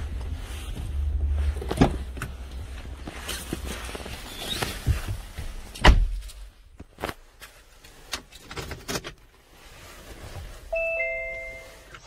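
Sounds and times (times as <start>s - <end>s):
chime-like tone: 10.7s - 12.0s.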